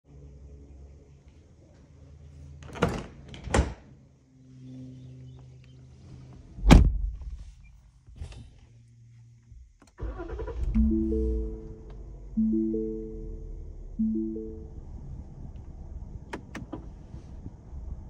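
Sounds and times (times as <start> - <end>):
car engine starting: 9.7 - 18.0.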